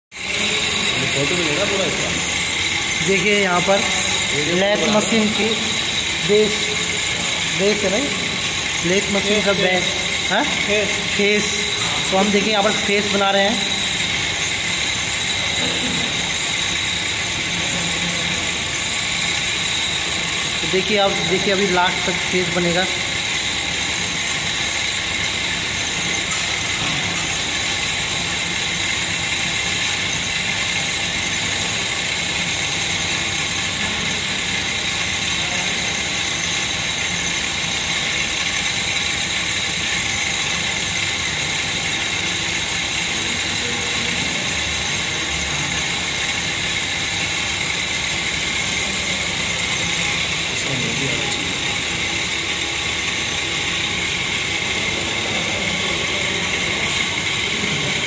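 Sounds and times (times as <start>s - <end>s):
lathe cutting metal: 0.1s - 58.0s
high-pitched ring: 0.2s - 38.3s.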